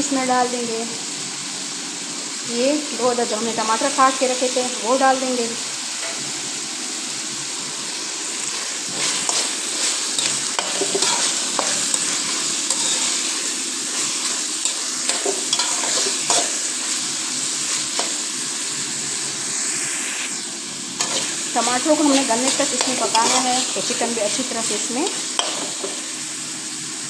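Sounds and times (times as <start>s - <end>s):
food sizzling in oil: 0.0s - 27.0s
metal spatula scraping pan: 8.9s - 16.6s, 21.0s - 24.8s.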